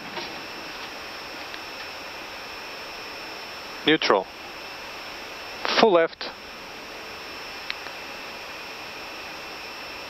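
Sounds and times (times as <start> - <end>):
cockpit background hiss: 0.0 - 10.0.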